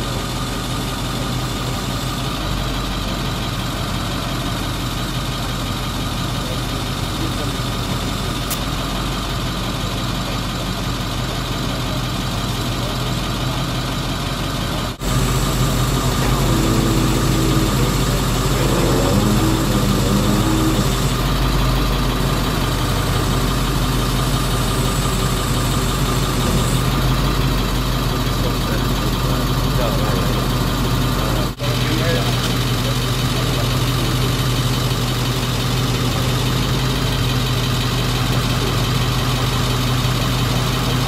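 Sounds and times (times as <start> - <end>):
vehicle engine idling: 0.0 - 41.0.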